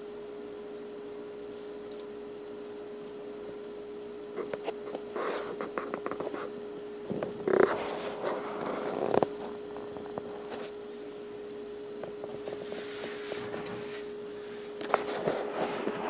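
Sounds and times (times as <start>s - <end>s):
faint steady hum: 0.0s - 16.0s
rustling: 12.1s - 16.0s.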